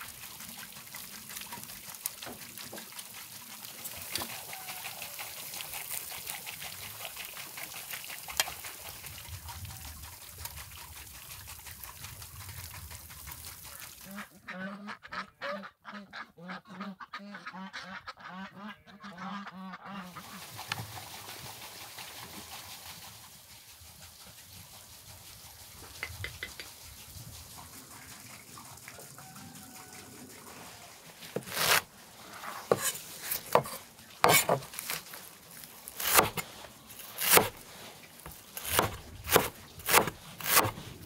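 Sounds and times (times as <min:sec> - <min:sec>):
ducks quacking: 0:14.0 - 0:20.4.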